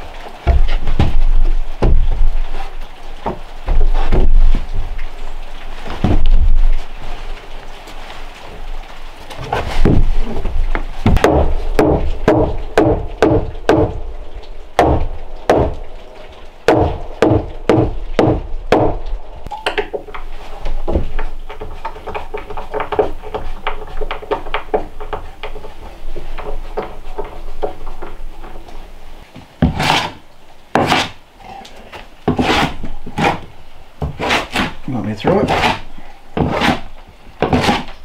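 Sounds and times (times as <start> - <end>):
wooden tapping and rubbing: 0.2 - 8.0, 9.3 - 38.0
log thudding on wooden door: 0.4 - 2.4, 5.9 - 6.7, 9.4 - 14.0, 14.8 - 15.8, 16.7 - 19.0.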